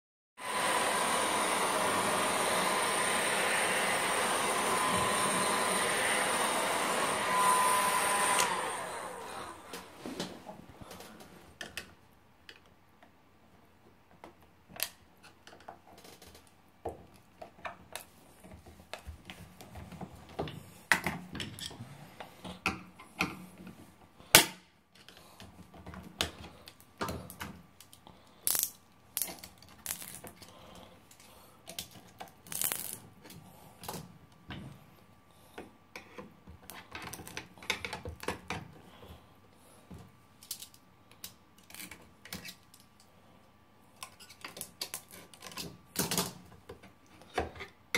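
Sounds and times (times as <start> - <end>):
hot-air gun blowing: 0.4 - 10.1.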